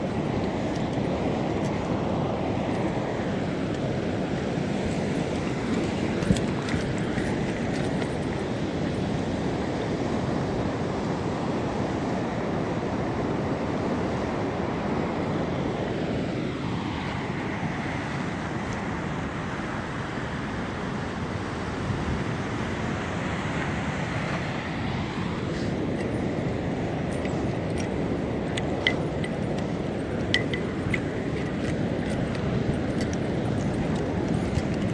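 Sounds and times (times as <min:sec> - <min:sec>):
sea waves washing against concrete: 0:00.0 - 0:10.8, 0:23.4 - 0:34.9
wind over microphone: 0:00.0 - 0:34.9.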